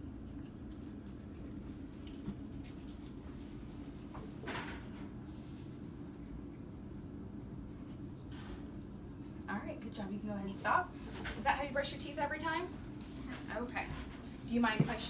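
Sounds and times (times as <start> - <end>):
toothbrush scrubbing teeth: 0.0 - 10.3.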